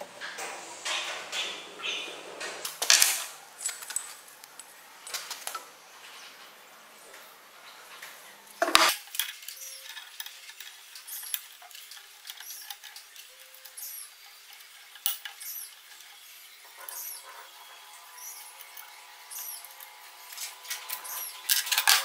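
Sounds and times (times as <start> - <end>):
metal clinks and scrapes: 8.8 - 17.5, 19.8 - 22.0.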